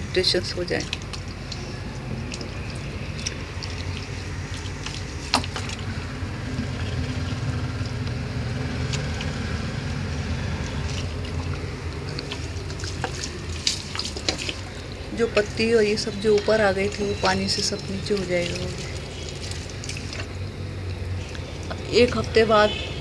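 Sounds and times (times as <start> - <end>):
water pouring onto soil: 0.3 - 21.5
small ticks: 0.8 - 5.8, 6.6 - 8.2.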